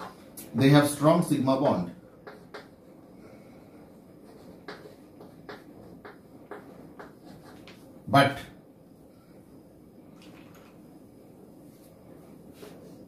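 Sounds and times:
chalk writing on chalkboard: 2.2s - 2.8s, 4.2s - 7.9s.

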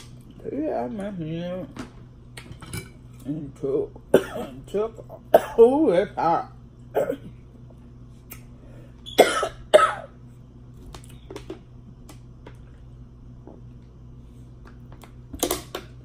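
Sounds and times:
woman coughing: 4.1s - 4.6s, 5.3s - 5.7s, 6.9s - 7.3s, 9.2s - 10.2s.

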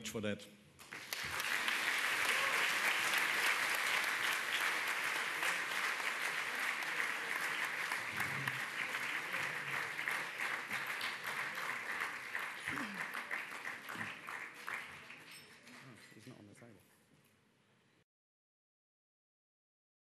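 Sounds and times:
audience applauding: 0.8s - 16.0s.

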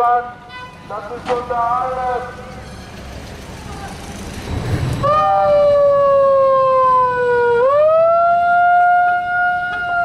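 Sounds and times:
siren wailing: 3.6s - 10.0s.

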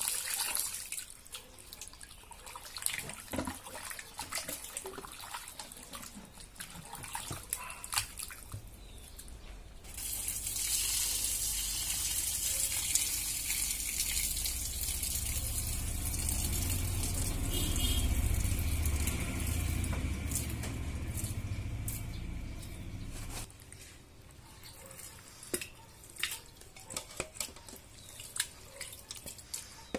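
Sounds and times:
hands squishing meat in water: 0.0s - 9.4s, 23.6s - 29.9s
small wet splashes: 0.0s - 22.1s, 24.6s - 29.9s.

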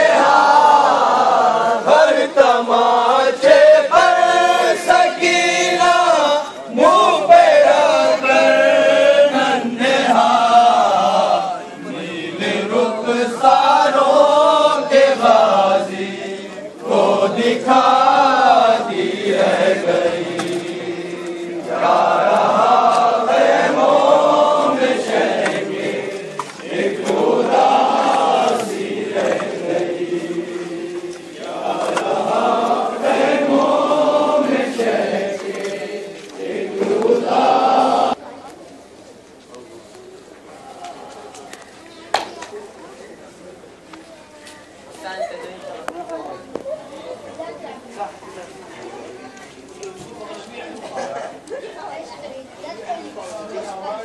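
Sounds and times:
men chanting a lament: 0.0s - 38.2s.

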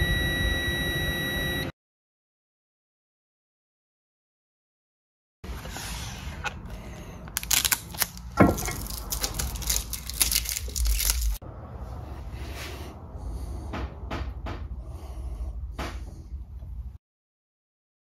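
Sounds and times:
tape peeling off roll: 7.4s - 11.4s.

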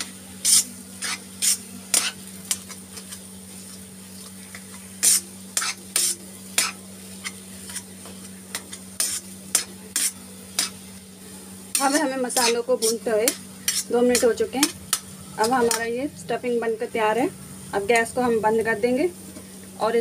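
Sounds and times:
metal spoon scraping a pan: 0.0s - 3.2s, 5.0s - 10.8s, 11.7s - 16.0s
faint frying sizzle: 0.0s - 20.0s
steady low hum: 0.0s - 20.0s.

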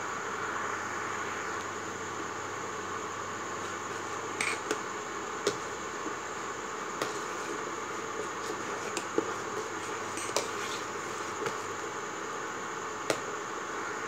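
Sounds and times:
fan-like hiss: 0.0s - 14.0s
ladle stirring in metal pot: 7.0s - 11.7s.

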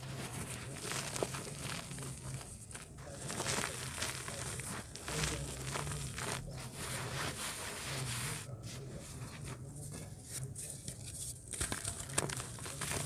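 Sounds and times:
grit sifting onto pile: 0.0s - 8.5s.

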